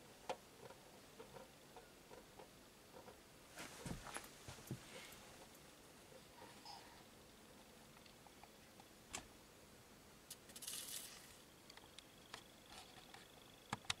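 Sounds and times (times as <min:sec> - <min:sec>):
spinning top scraping rattle: 0:10.3 - 0:11.4.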